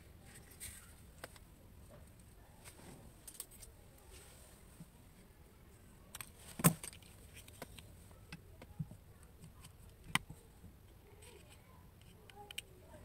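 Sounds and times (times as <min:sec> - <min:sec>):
cable and connectors handling noise: 0:00.2 - 0:05.2, 0:06.0 - 0:12.8.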